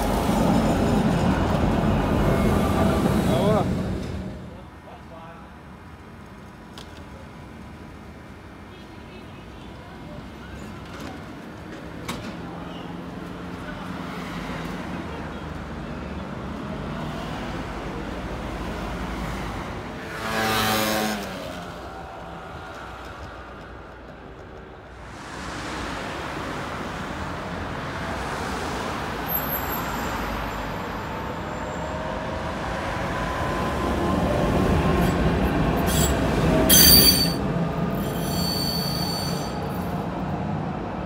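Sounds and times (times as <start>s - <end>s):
tram motor passing: 0.0s - 4.6s, 16.6s - 41.0s
street and tram traffic: 0.0s - 41.0s.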